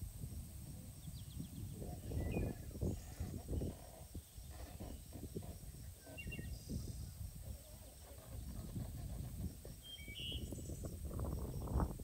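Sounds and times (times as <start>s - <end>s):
bird chirping: 1.0s - 8.8s, 9.7s - 11.0s.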